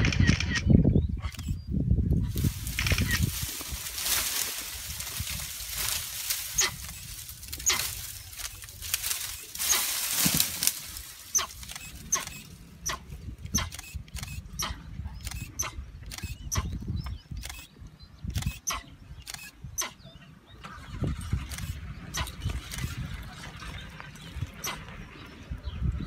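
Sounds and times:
branches and brush snapping: 2.3 - 14.2.

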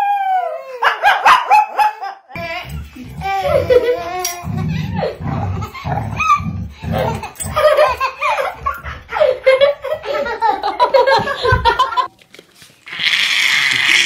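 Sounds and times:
hearty laughter: 2.0 - 12.1.

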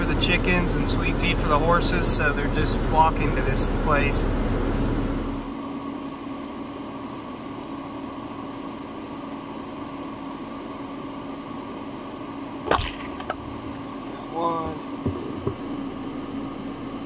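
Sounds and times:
truck engine hum: 0.0 - 17.0.

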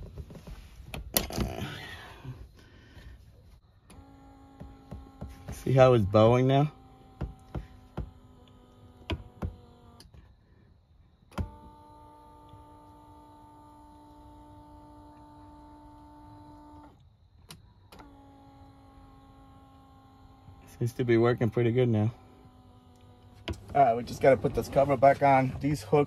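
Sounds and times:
seat motor electric whine: 0.0 - 26.0.

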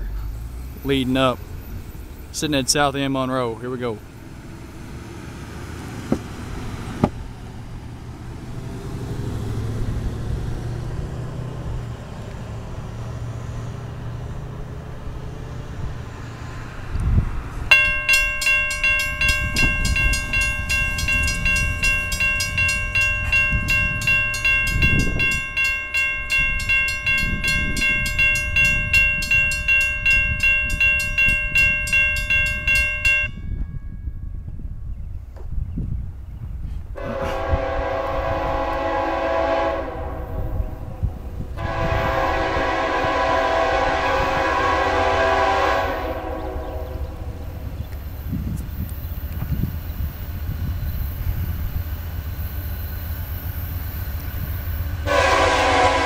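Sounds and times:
low rumble of road traffic: 0.0 - 56.0
railroad crossing bell ringing: 17.7 - 34.8, 37.1 - 56.0.

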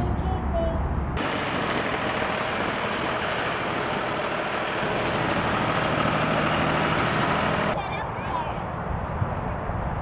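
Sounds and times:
tractor engine running: 1.2 - 7.8.

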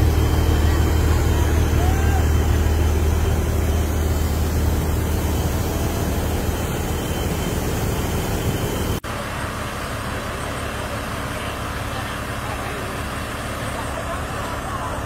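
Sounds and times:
auger unloading grain: 0.0 - 14.8
harvester engine running: 0.0 - 15.0.

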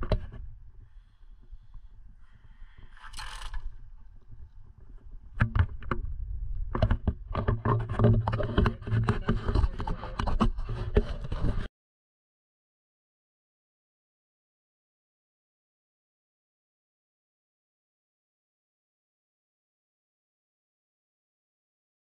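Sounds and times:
microphone handling noise: 0.0 - 11.7.

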